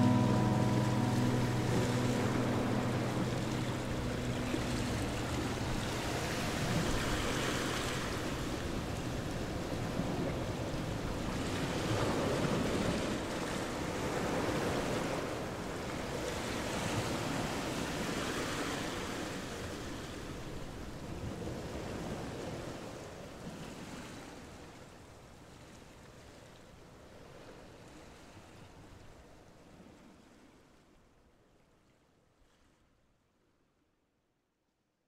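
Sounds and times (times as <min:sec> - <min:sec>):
background music: 0:00.0 - 0:06.9.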